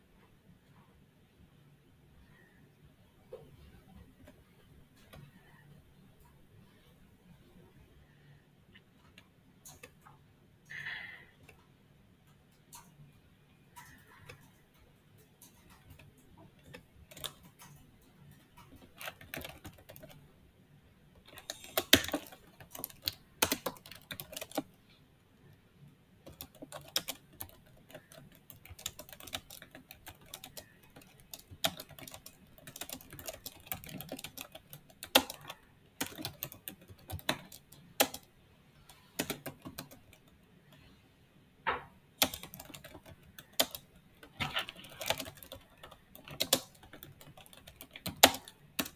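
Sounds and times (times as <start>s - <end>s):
typing on computer keyboard: 9.0s - 10.8s, 13.7s - 20.2s, 21.2s - 24.8s, 26.2s - 40.8s, 42.2s - 48.9s.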